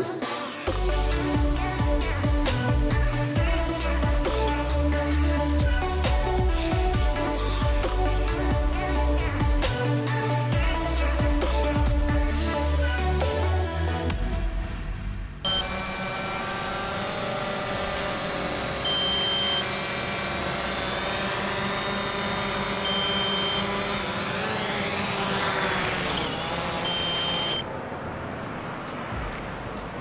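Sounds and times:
drone propellers whining: 0.7 - 12.4, 15.4 - 28.0
short high beeps: 18.9 - 19.7.

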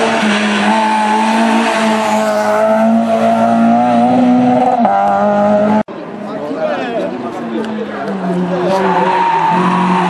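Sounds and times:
rally car engine at high revs: 0.0 - 5.9.

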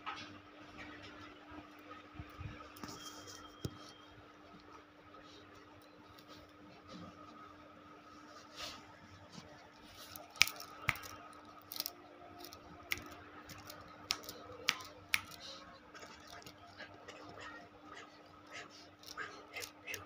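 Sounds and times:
puppy teeth clicking: 10.2 - 17.6.

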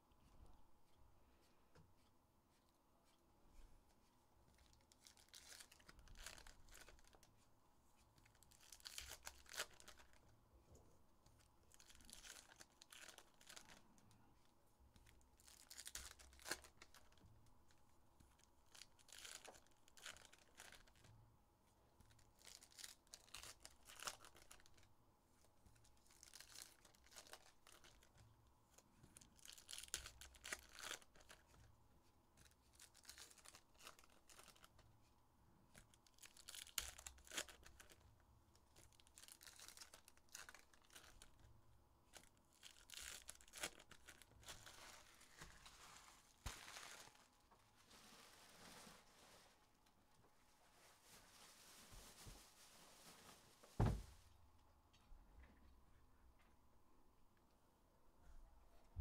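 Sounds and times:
wrappers tearing and crinkling: 4.6 - 7.3, 8.3 - 10.2, 11.7 - 13.8, 15.4 - 17.2, 18.4 - 21.0, 22.1 - 24.9, 25.9 - 28.1, 29.2 - 31.6, 32.7 - 34.8, 35.8 - 38.0, 38.8 - 41.5, 42.1 - 49.4.

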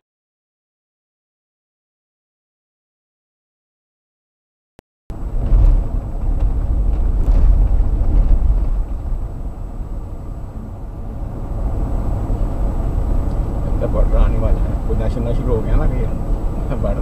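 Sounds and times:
car engine and tyres rumbling: 5.1 - 17.0.

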